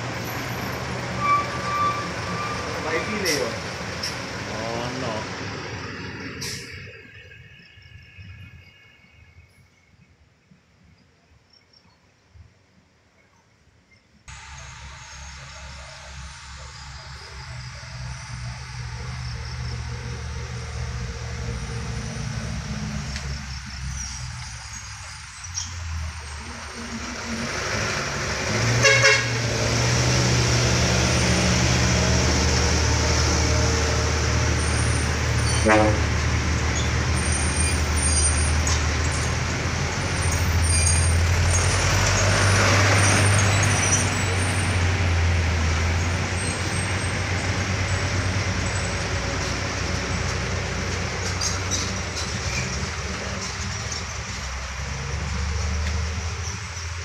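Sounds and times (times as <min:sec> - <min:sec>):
truck diesel engines labouring: 0:00.0 - 0:08.8, 0:14.3 - 0:57.0
short horn toots: 0:35.5 - 0:36.1.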